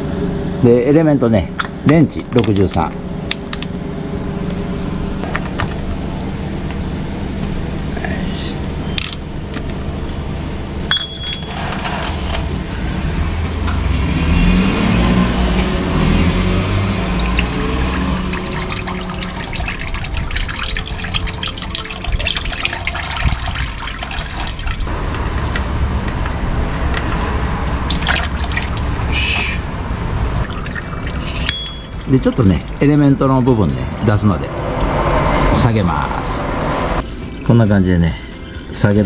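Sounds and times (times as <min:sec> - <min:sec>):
oil pouring and splattering: 0:16.9 - 0:24.9, 0:27.9 - 0:29.0, 0:30.4 - 0:32.8
music: 0:17.4 - 0:39.0.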